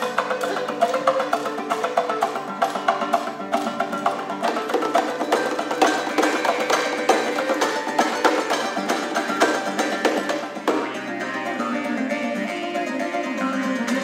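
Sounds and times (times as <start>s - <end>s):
knocking percussion beat: 0.0s - 11.0s
plucked lutes: 0.0s - 14.0s
zither: 0.0s - 14.0s.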